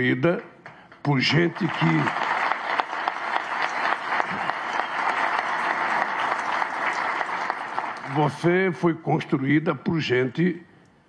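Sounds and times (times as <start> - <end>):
audience applauding: 1.1 - 8.5.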